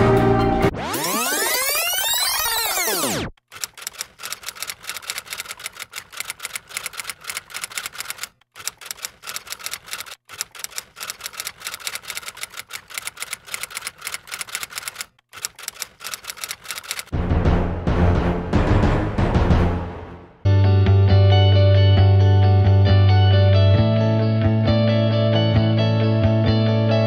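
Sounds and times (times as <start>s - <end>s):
typewriter key clicks: 3.4s - 17.1s
music with deep drum hits: 17.2s - 20.3s.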